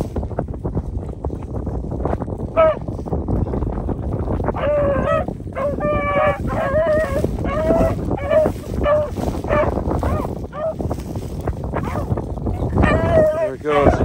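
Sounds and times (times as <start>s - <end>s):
beagles baying: 4.6s - 11.0s, 11.7s - 14.0s.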